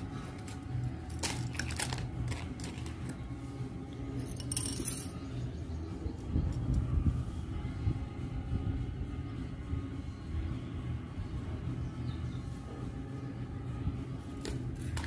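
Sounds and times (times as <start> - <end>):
low steady hum: 0.0 - 15.0
metal bangles clinking: 4.2 - 5.3.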